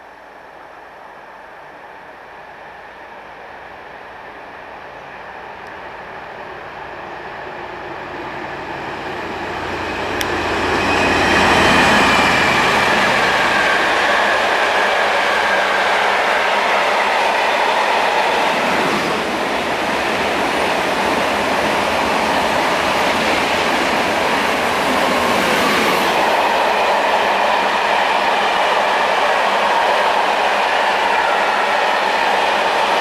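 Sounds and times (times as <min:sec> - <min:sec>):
diesel locomotive engine rumble: 0:00.0 - 0:33.0
high-speed train passing: 0:00.0 - 0:33.0.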